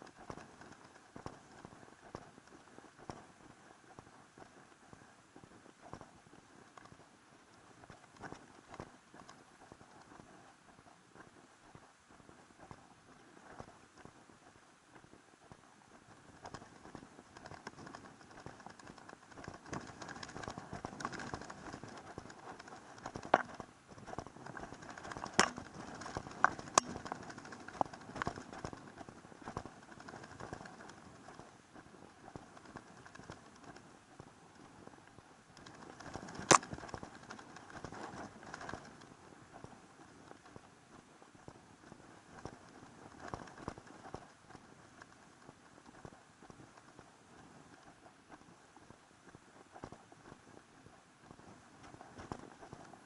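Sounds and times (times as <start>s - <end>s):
sharp clicks: 17.4s - 28.8s.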